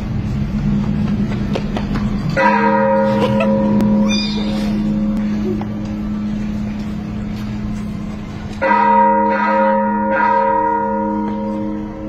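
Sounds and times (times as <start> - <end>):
church bell ringing: 2.3 - 5.4, 8.2 - 12.0.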